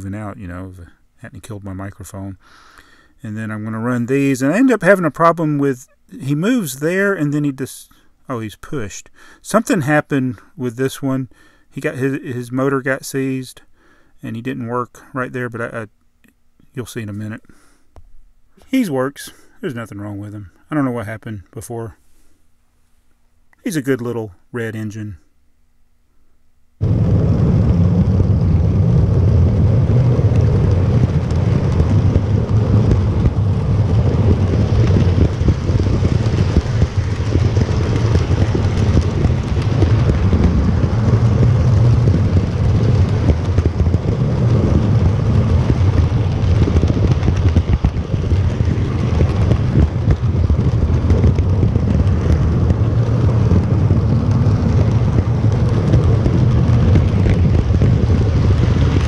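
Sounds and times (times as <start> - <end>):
model train wheels rattling on rails: 34.6 - 59.0.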